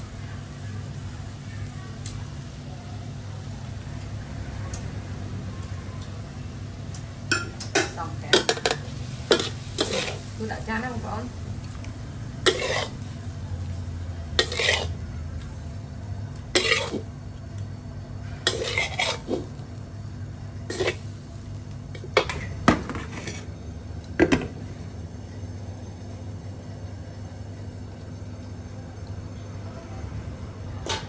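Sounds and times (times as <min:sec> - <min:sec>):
steady low hum: 0:00.1 - 0:31.0
metal spatula scraping a wok: 0:08.4 - 0:10.3, 0:12.4 - 0:13.2, 0:14.3 - 0:15.0, 0:16.5 - 0:17.1, 0:18.4 - 0:19.6, 0:20.7 - 0:21.1, 0:22.2 - 0:23.5.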